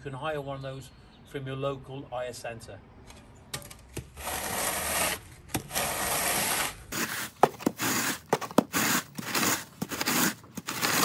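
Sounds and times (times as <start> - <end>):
wooden bar scraping stone dust: 4.0 - 11.0.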